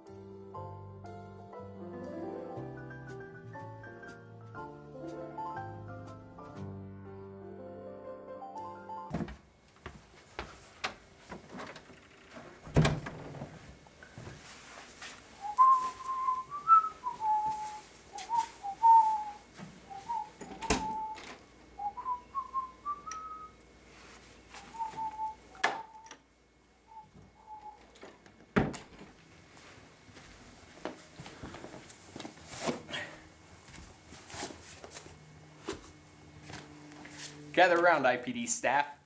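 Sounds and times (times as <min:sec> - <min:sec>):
person whistling: 0:15.4 - 0:21.2, 0:21.8 - 0:23.6, 0:24.6 - 0:26.1, 0:26.9 - 0:27.8.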